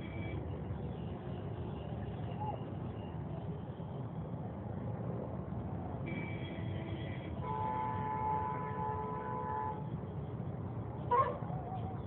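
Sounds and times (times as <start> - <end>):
traffic engines rumbling: 0.0 - 12.0
vehicle horn: 6.1 - 9.8.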